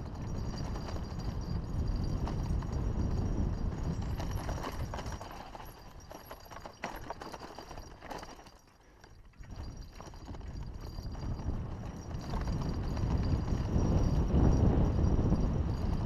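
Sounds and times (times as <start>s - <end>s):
low wind rumble: 0.0s - 6.1s, 9.4s - 16.0s
bike rattling and knocking: 0.0s - 16.0s.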